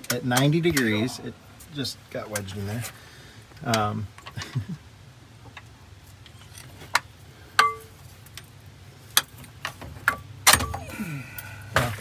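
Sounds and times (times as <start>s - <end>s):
tools clinking on metal: 7.6s - 7.9s.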